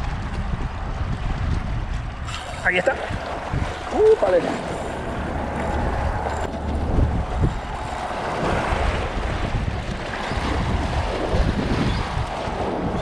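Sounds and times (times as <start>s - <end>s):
wind buffeting microphone: 0.0s - 13.0s
water washing against rocks: 1.4s - 13.0s.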